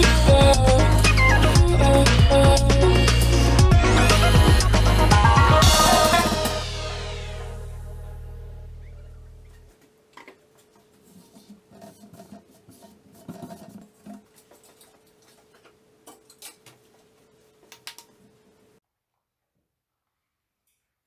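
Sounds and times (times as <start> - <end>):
background music: 0.0 - 9.4.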